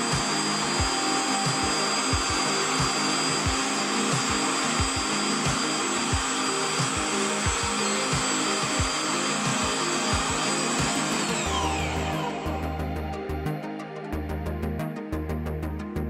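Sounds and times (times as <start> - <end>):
electric meat grinder running: 0.0 - 12.9.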